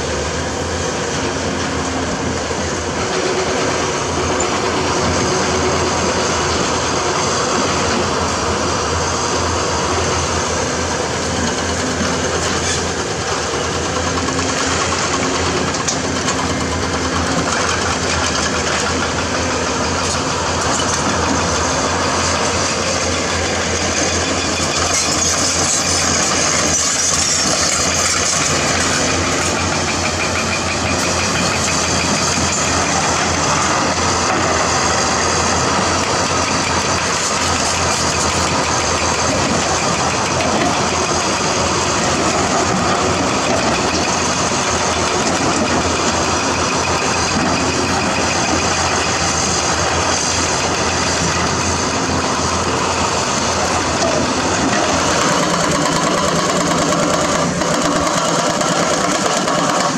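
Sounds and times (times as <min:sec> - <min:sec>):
excavator diesel engines under load: 0:00.0 - 0:59.9.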